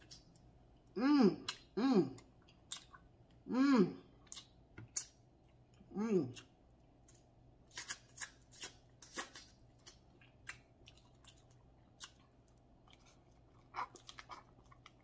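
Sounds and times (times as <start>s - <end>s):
chewing: 7.8s - 15.0s.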